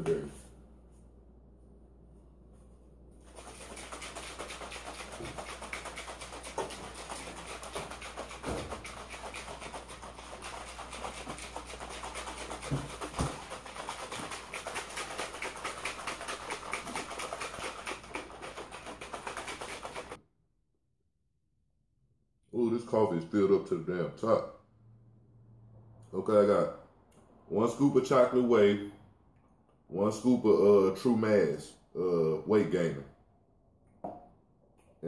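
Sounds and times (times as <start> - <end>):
shaker cup rattling and sloshing: 3.2 - 20.2.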